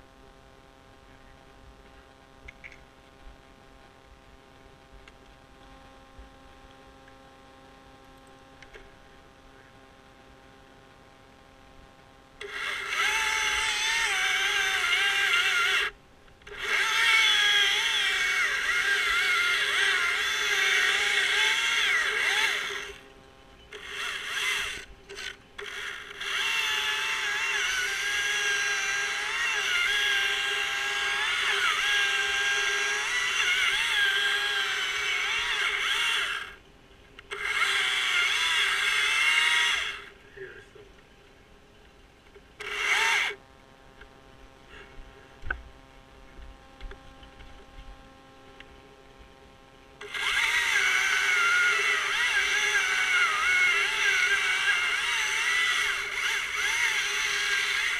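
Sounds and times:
chainsaw cutting wood: 12.4s - 23.0s, 23.8s - 36.6s, 37.3s - 40.1s, 42.6s - 43.4s, 50.0s - 57.9s.

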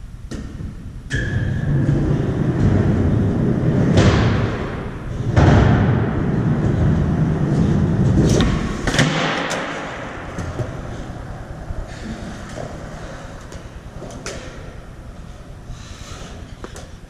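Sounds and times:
skateboard clacks and thuds: 0.3s - 10.8s
skateboard wheels rolling: 0.6s - 17.0s.

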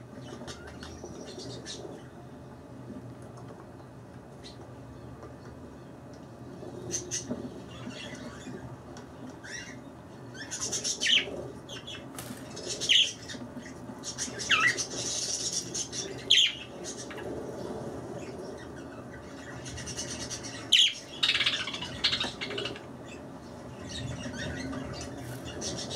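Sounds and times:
budgerigars chirping and chattering: 9.4s - 17.3s, 18.2s - 25.9s.

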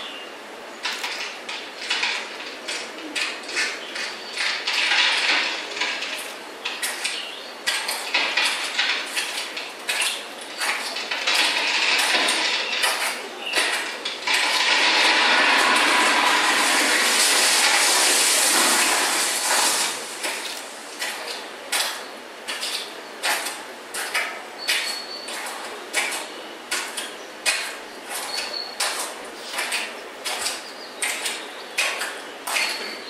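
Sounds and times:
loud rush of noise: 14.2s - 21.0s.

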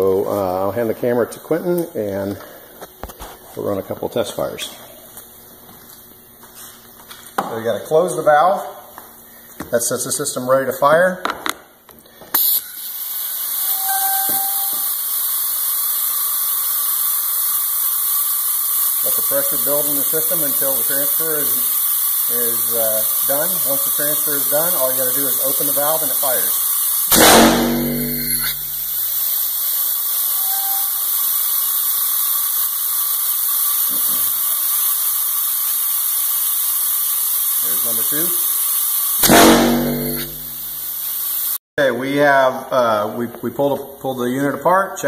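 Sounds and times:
compressed air hissing: 12.1s - 41.6s.

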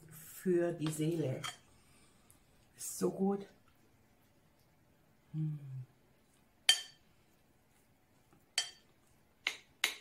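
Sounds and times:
person humming: 5.3s - 6.0s.

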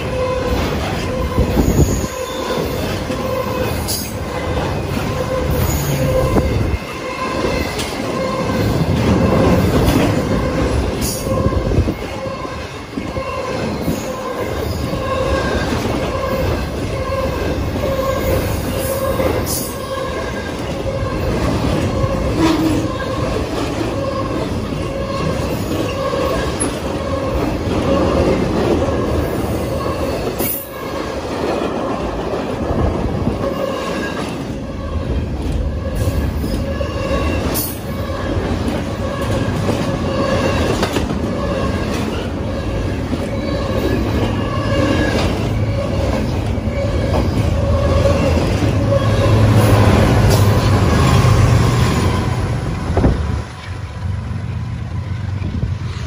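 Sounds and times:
diesel locomotive engine rumble: 0.0s - 56.0s
freight train rumbling on rails: 0.0s - 56.0s
wheels squealing: 33.2s - 53.1s.

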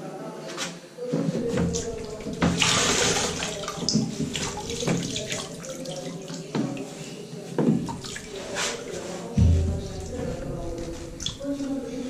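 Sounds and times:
grout float scrubbing: 1.3s - 5.9s, 7.9s - 12.0s
water sloshing and splashing: 1.3s - 7.0s, 7.6s - 12.0s.

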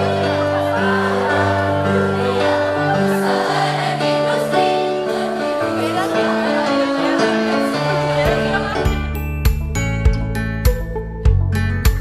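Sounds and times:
mixed choir singing: 0.0s - 9.0s
instrumental accompaniment: 0.0s - 12.0s.

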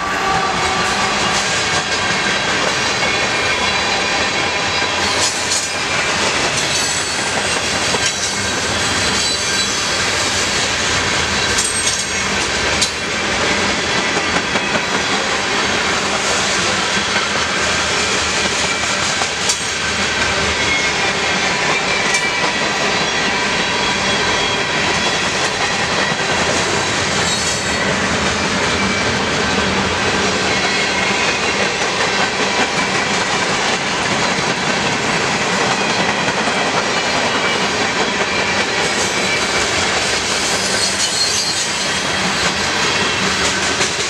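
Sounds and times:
train wheels rumbling and clacking: 0.0s - 44.0s
high-pitched wheel squeal: 8.1s - 10.0s, 40.4s - 42.5s.

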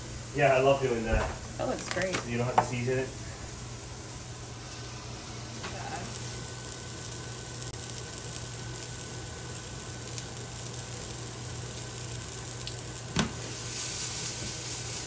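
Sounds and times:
fish deep-frying in hot oil: 1.6s - 15.0s.

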